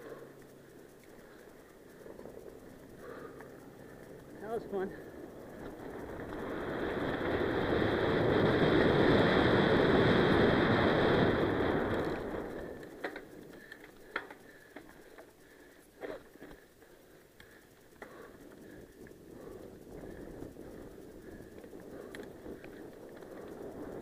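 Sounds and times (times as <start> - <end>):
bike tyres rolling on gravel: 0.0 - 24.0
wind rushing over microphone: 5.2 - 12.8
bike clicks and knocks: 11.9 - 19.2.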